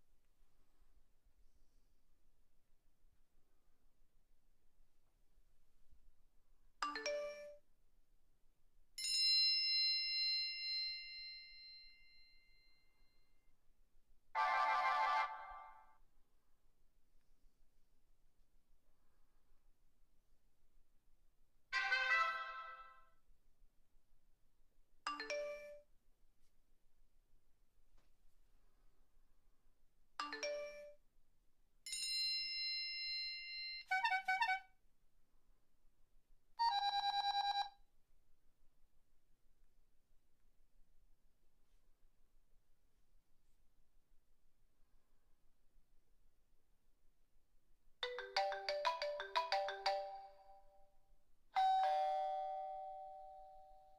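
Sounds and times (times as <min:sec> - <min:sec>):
high bell ding: 0:51.6 - 0:53.9.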